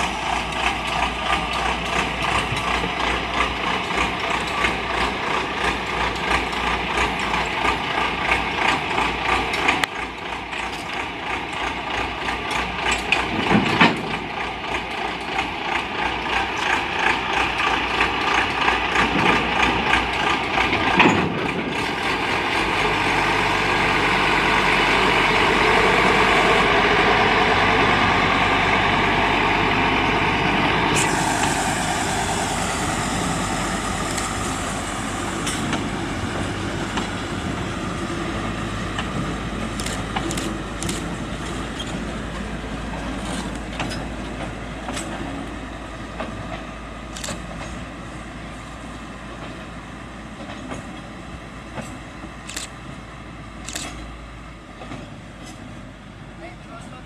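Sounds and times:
wagons clicking and knocking on track: 0:00.0 - 0:23.4, 0:33.6 - 0:47.9, 0:49.3 - 0:52.8, 0:54.7 - 0:55.8
diesel locomotive engine running: 0:00.0 - 0:57.0.

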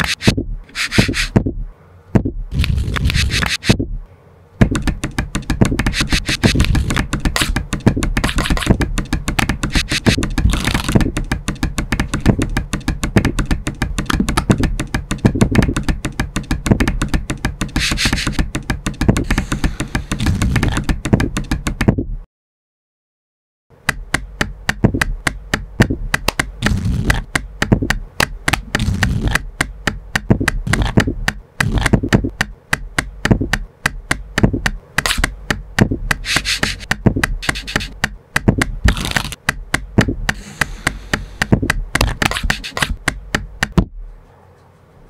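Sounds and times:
hissing sweeps of cards: 0:00.0 - 0:01.4, 0:02.6 - 0:03.8, 0:05.9 - 0:07.6, 0:17.8 - 0:18.4, 0:19.2 - 0:20.6, 0:36.2 - 0:37.9, 0:40.4 - 0:41.4
cards and hands tapping on table: 0:04.6 - 0:22.0, 0:23.8 - 0:43.9.

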